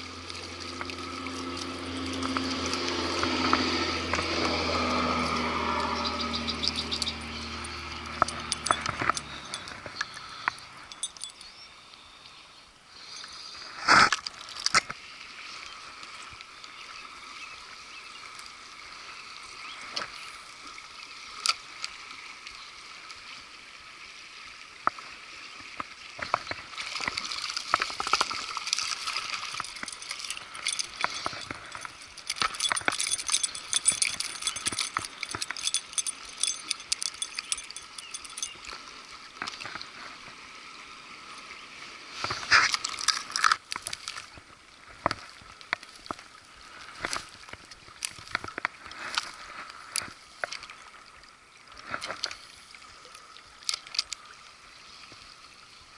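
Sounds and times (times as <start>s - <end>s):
creek water running: 0.0s - 55.9s
fishing reel clicks and knocks: 6.6s - 11.5s, 27.8s - 38.8s.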